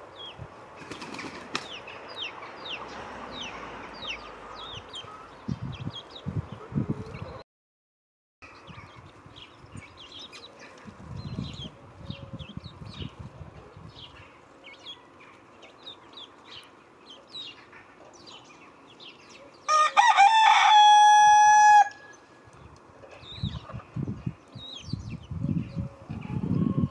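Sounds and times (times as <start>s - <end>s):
small birds chirping: 8.4s - 19.7s, 22.1s - 26.9s
rooster crowing: 19.7s - 22.2s.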